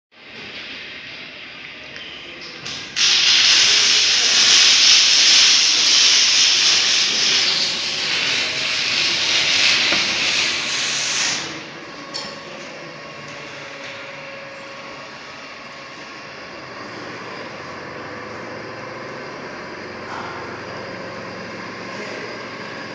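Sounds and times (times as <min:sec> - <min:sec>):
loud steady hiss: 0:02.6 - 0:11.9.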